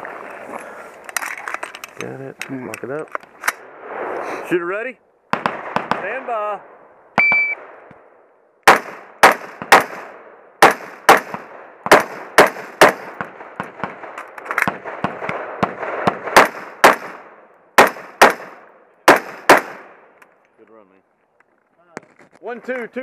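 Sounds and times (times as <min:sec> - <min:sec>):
carbine gunshots with echo: 0:05.3 - 0:20.2.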